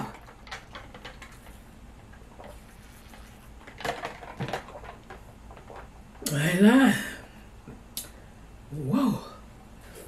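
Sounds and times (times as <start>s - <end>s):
tableware knocks and clatter: 3.6s - 5.7s.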